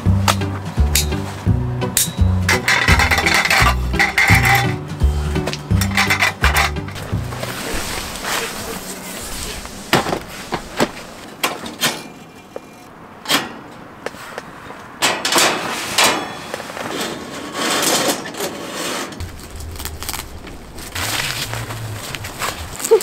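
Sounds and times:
knocks and clicks of camp gear: 5.4s - 7.5s
canvas fabric rustling: 7.0s - 11.3s.

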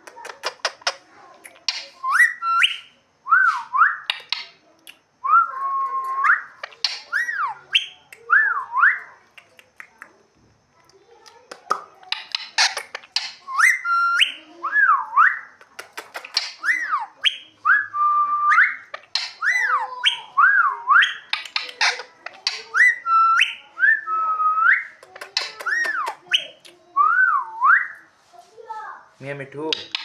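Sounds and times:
parakeet whistling: 1.7s - 4.5s, 5.4s - 9.0s, 12.3s - 15.5s, 16.3s - 28.0s.

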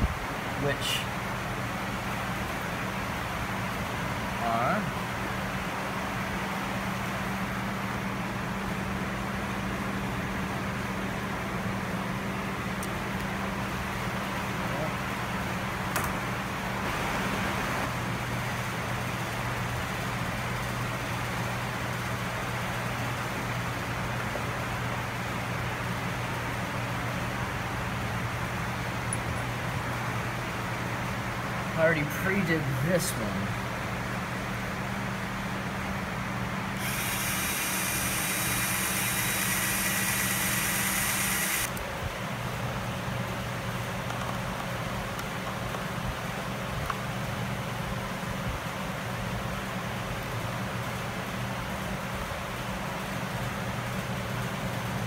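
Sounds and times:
low machine hum: 0.0s - 55.0s
cordless drill whirring: 36.8s - 41.8s.

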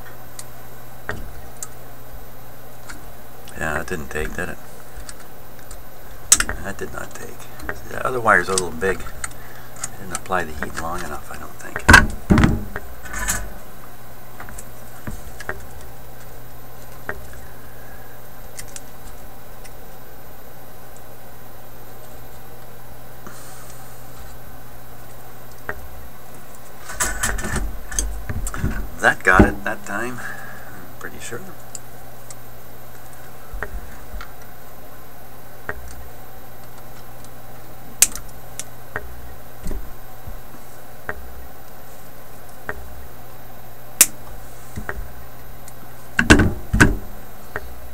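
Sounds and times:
steady low hum: 0.0s - 47.9s
knock on metal chassis: 12.0s - 12.8s.

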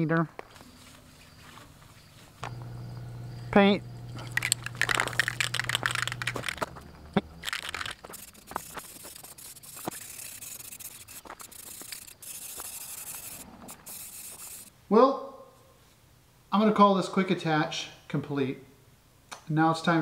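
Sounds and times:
spray can rattling: 4.2s - 14.7s
spray paint hissing: 7.4s - 14.7s.

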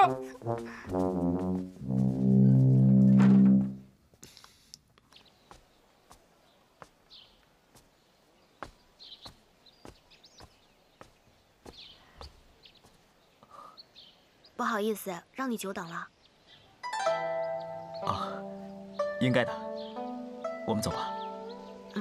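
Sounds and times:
comic brass music sting: 0.1s - 3.8s
birds chirping: 5.0s - 22.0s.

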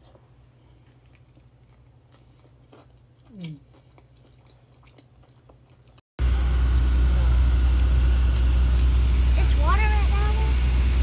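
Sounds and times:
faint chewing: 0.0s - 6.0s.

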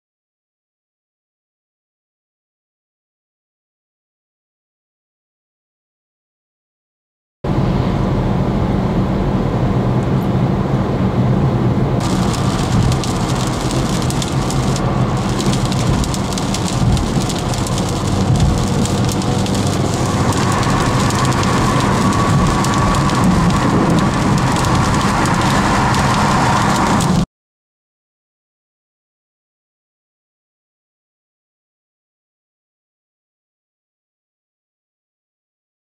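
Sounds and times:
engine and tyre hum: 7.5s - 27.2s
heavy rain on car roof: 12.0s - 27.2s.

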